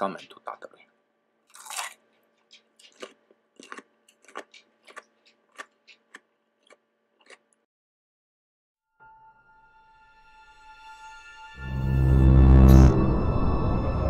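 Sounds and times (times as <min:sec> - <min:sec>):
chewing crisp radish: 0:01.5 - 0:07.6.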